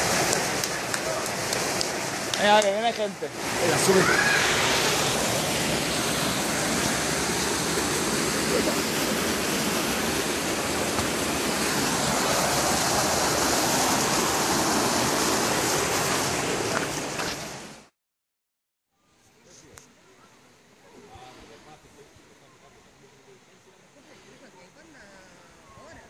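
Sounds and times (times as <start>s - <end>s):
river water rushing: 0.0s - 17.9s.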